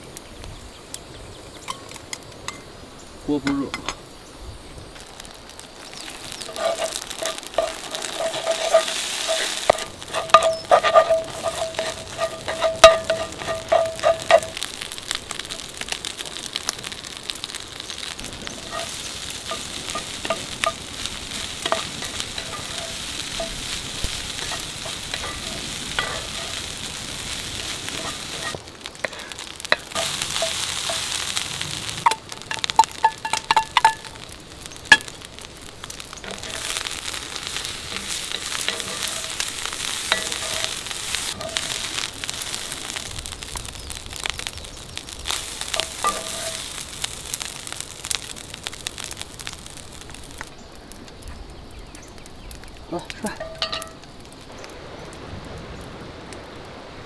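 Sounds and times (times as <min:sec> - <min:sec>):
rice sizzling in a skillet: 0:00.0 - 0:57.0
wooden spatula scraping and tapping: 0:05.9 - 0:17.0, 0:18.0 - 0:48.2, 0:53.3 - 0:54.0.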